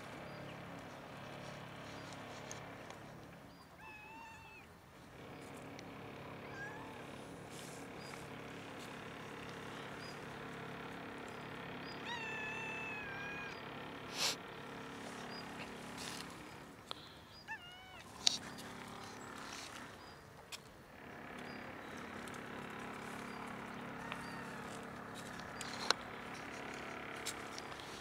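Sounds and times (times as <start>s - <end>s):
cat meowing: 3.8s - 4.7s, 6.4s - 7.1s, 12.0s - 13.6s, 17.5s - 18.1s, 24.0s - 24.8s.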